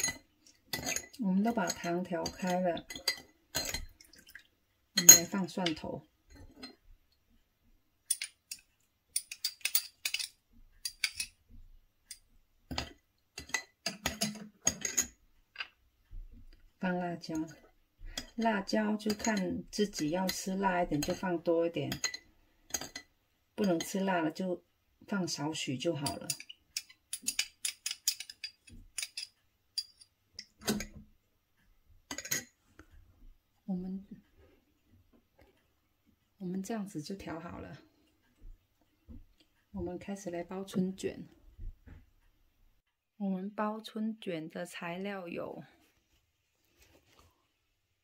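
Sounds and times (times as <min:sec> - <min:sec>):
metal spoon clinking against glass: 0:05.0 - 0:05.4, 0:09.2 - 0:11.4, 0:21.9 - 0:23.1, 0:26.0 - 0:30.0.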